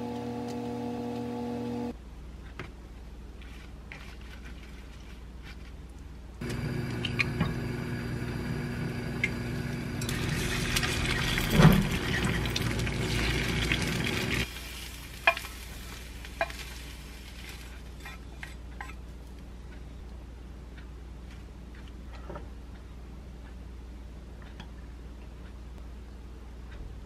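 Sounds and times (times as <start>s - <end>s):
steady hum: 0.0s - 2.2s, 6.2s - 14.5s
egg sizzling in a pan: 6.5s - 18.1s.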